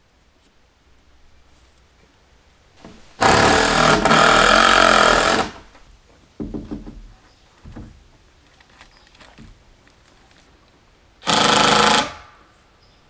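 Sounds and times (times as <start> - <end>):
power tool running: 3.2 - 5.6, 11.2 - 12.3.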